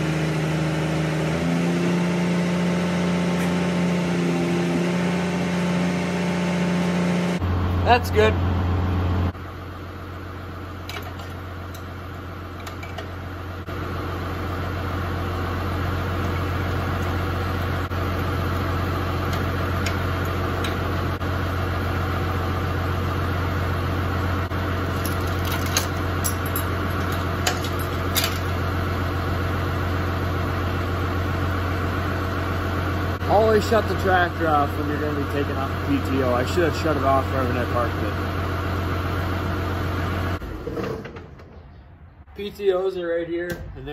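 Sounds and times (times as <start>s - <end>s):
tractor diesel engine idling: 7.4s - 40.4s
short metal clinks: 25.0s - 28.5s.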